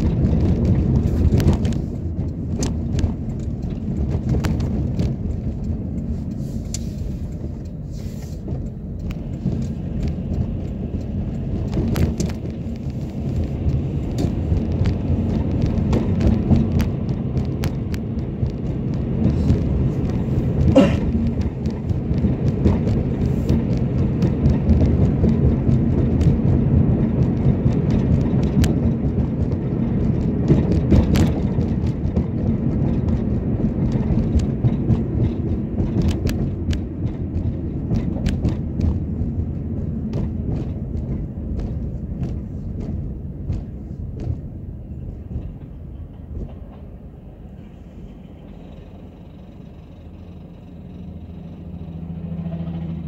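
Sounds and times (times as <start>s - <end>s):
tyres rumbling on concrete: 9.5s - 47.4s.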